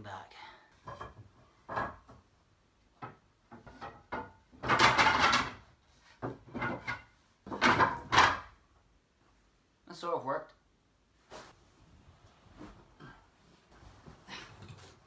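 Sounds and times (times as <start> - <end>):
wooden slats clattering: 3.0 - 8.6.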